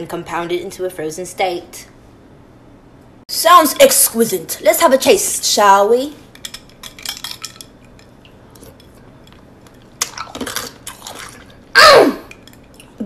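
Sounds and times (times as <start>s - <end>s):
person exclaiming: 11.8s - 12.3s.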